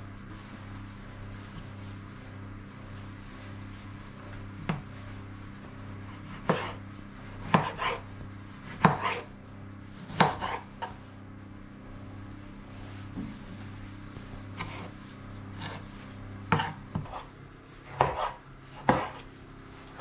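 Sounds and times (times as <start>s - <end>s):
steady low hum: 0.0s - 20.0s
knife chopping on wooden board: 6.2s - 6.8s, 7.4s - 8.0s, 8.7s - 9.3s, 10.1s - 11.0s, 16.5s - 19.3s.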